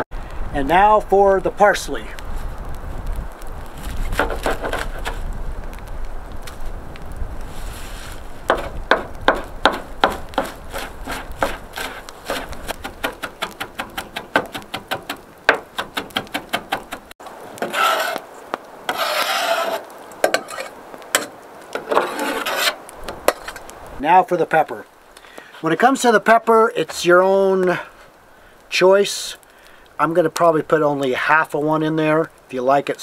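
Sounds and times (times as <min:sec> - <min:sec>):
herbs scraped into metal bowl: 0:17.6 - 0:18.2, 0:18.9 - 0:20.8, 0:21.9 - 0:23.6.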